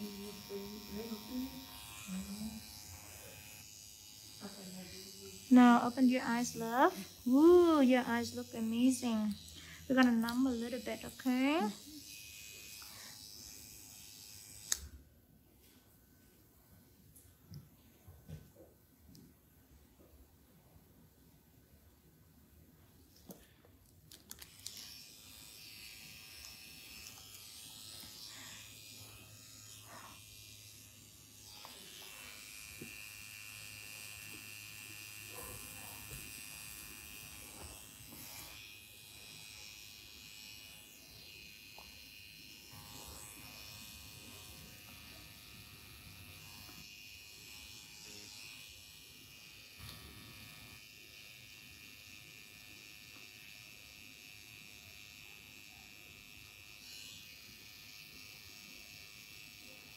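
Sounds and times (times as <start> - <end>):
high-pitched machine buzz: 0.0 - 14.4, 24.6 - 55.9.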